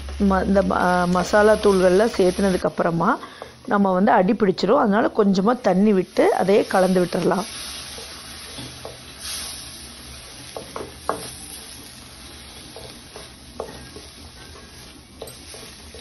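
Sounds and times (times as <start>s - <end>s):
masala sizzling in a pan: 0.0s - 16.0s
spatula scraping and tapping pan: 7.8s - 9.1s, 10.3s - 16.0s.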